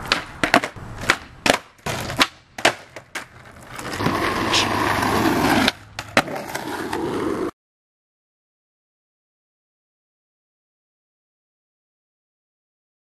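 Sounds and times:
skateboard clacks: 0.0 - 7.5
skateboard wheels rolling: 0.0 - 7.6.

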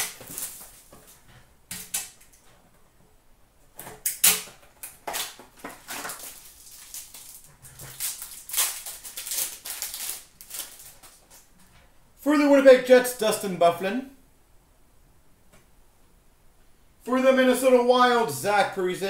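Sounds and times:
foil wrapper crinkling and tearing: 0.0 - 1.0, 4.2 - 11.5.

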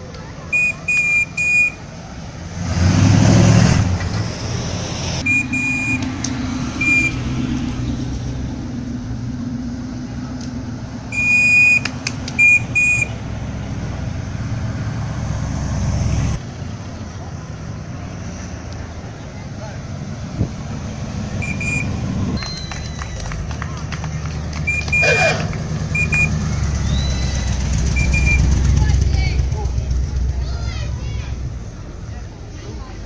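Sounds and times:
car engines driving slowly past: 0.0 - 33.0
engine revving hard: 2.5 - 10.2
short high-pitched toots: 24.8 - 26.3.

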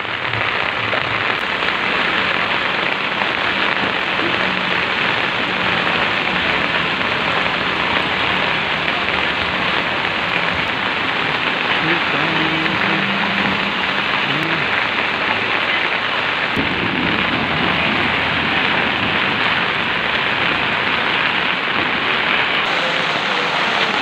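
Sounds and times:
heavy rain pouring: 0.0 - 24.0
low rumble: 16.6 - 22.4.

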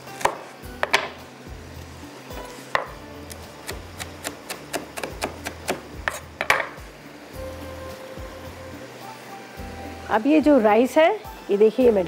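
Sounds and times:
utensils knocking on cookware: 6.1 - 6.8.

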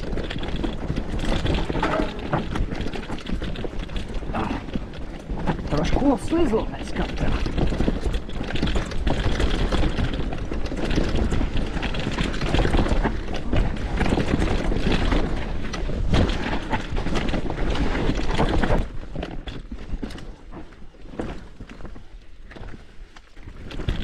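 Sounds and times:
mountain bike rattling over rocks: 0.0 - 24.0.

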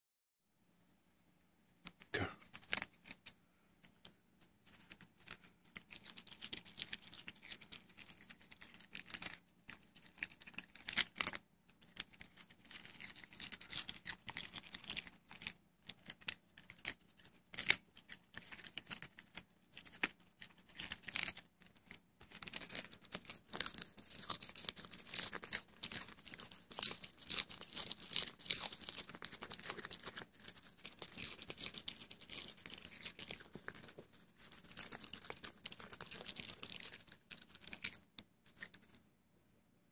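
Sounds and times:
dog chewing lettuce: 22.5 - 38.0.

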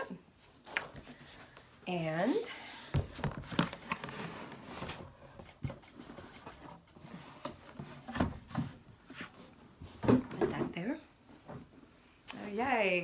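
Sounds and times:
cardboard box rustling and scraping: 2.6 - 9.6.

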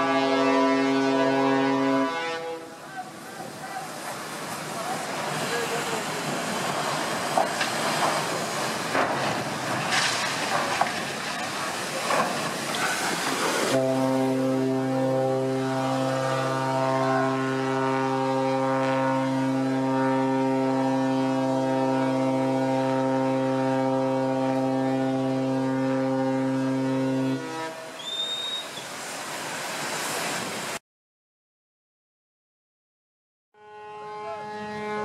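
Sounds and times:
ship's horn blast: 0.0 - 3.2, 13.6 - 28.8, 33.6 - 35.0
high whistle: 28.0 - 28.9.

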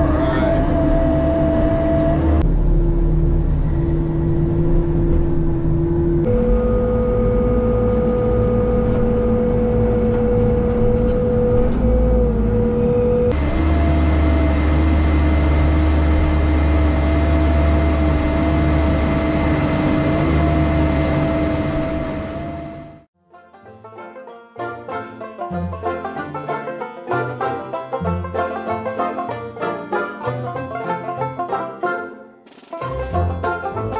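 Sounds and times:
excavator engine rumble: 0.0 - 23.1
high hydraulic whine: 0.0 - 23.1.

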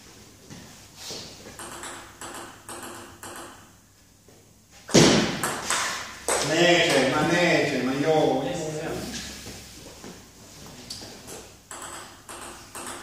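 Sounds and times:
table tennis ball clicking: 11.7 - 13.0.

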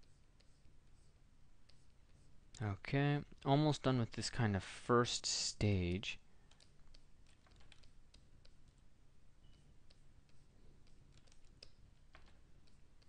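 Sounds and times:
low room hum: 0.0 - 13.0
computer mouse clicks and taps: 6.4 - 8.8, 9.4 - 13.0.

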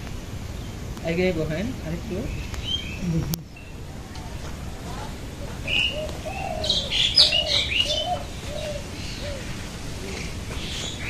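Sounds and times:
birds chirping: 0.0 - 11.0
low cooing bird calls: 2.2 - 11.0.

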